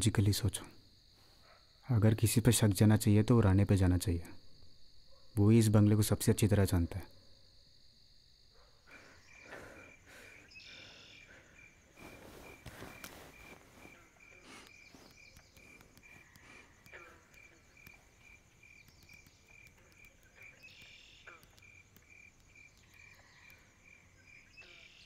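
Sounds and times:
cricket chirping: 0.0s - 25.0s
soft rustles and clicks: 11.8s - 23.6s.

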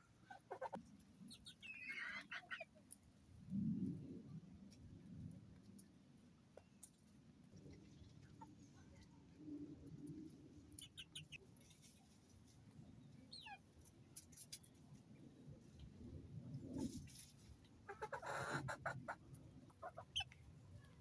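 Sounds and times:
faint low rumble: 2.6s - 17.9s.

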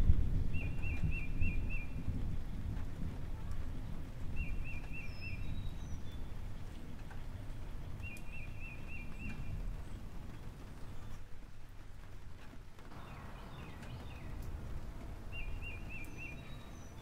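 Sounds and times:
bird chirping: 4.4s - 6.3s, 7.8s - 11.2s, 12.9s - 17.0s
low rumble: 12.9s - 17.0s.

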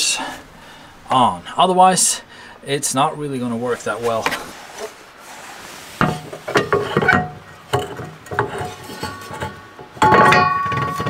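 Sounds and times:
metal knocks and clinks: 6.5s - 11.0s
loud metal clank ringing: 10.0s - 11.0s.

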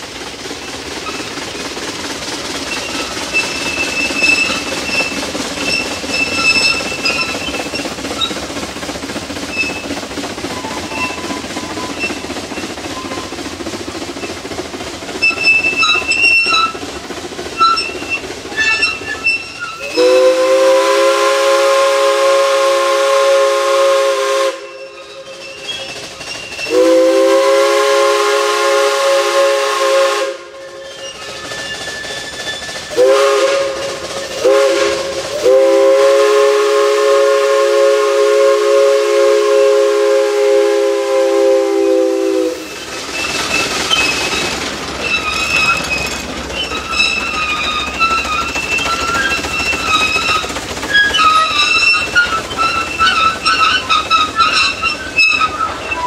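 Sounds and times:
train running noise and hiss: 0.0s - 56.0s
steam whistle chord: 19.8s - 25.0s, 26.7s - 30.8s, 32.9s - 42.7s.

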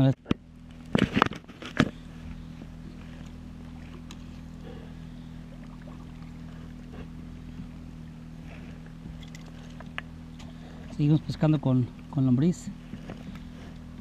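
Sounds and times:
low hum: 0.0s - 14.0s
paddle stroking through water: 11.9s - 14.0s.

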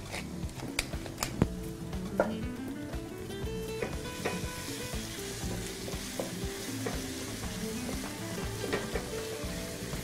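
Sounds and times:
food sizzling in a frying pan: 1.7s - 10.0s.

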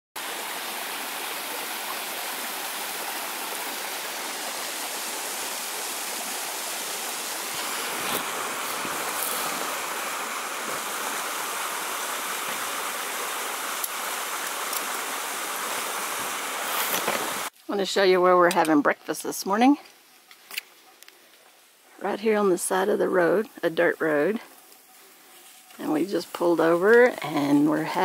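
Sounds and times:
stream rushing: 0.2s - 17.6s.

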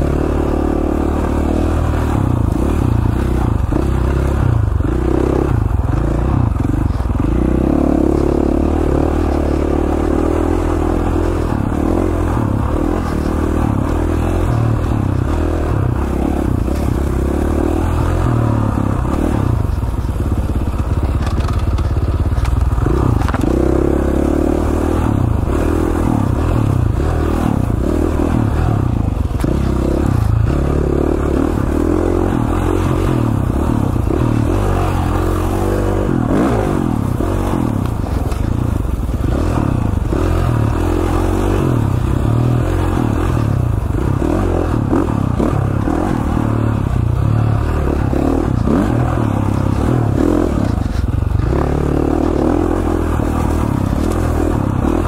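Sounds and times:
dirt bike engine revving: 0.0s - 55.0s.

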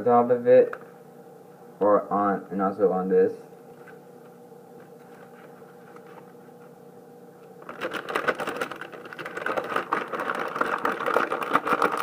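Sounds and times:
faint room hum: 0.0s - 12.0s
plastic bag crinkling: 7.6s - 12.0s.

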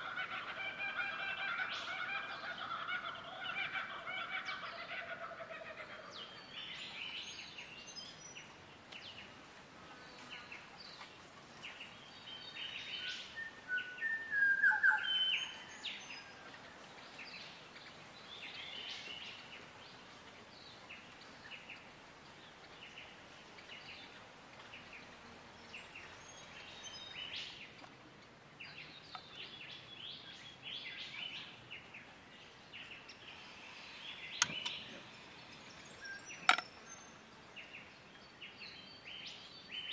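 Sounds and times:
birds chirping: 10.0s - 39.9s.

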